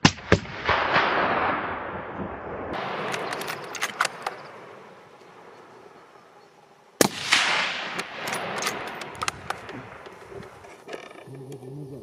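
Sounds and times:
rifle shot: 0.0 - 4.6, 7.0 - 10.0
sharp clicks: 3.0 - 4.5, 8.0 - 11.6.

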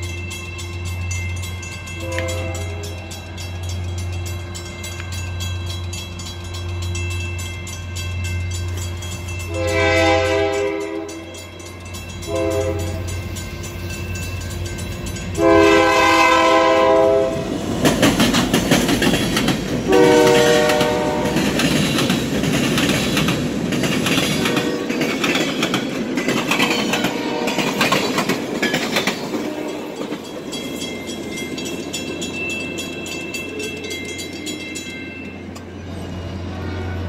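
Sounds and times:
locomotive air horn blasts: 2.0 - 3.0, 9.5 - 11.3, 12.3 - 13.1, 15.4 - 17.5, 19.9 - 21.5, 24.5 - 24.9, 27.1 - 27.7, 29.4 - 30.0
train wheels clattering over rail joints: 17.4 - 35.7.

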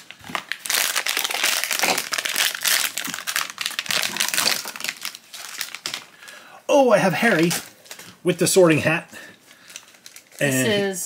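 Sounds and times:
foil pouch crinkling: 0.0 - 6.4, 9.5 - 10.6.

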